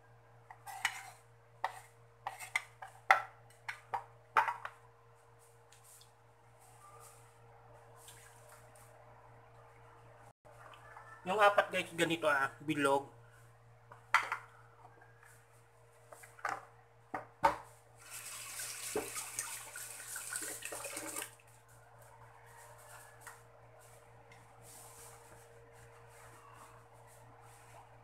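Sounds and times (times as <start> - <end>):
kitchen tap running: 18.0 - 21.4.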